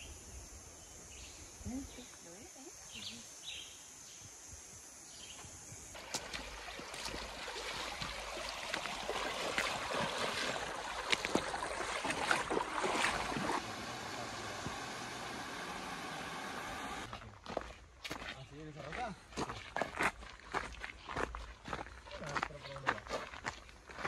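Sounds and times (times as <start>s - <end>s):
flowing water rushing: 6.0s - 17.1s
feet splashing through river: 6.0s - 24.0s.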